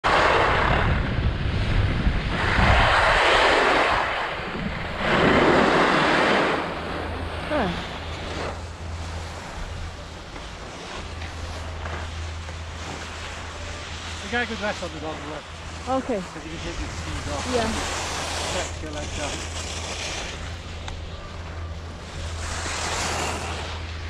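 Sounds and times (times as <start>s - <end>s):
wind buffeting microphone: 0.0s - 12.8s
skis scraping over packed snow: 0.1s - 24.0s.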